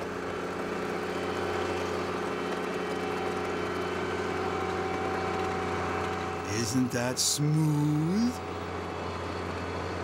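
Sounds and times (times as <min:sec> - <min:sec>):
diesel engine droning: 0:05.4 - 0:10.0.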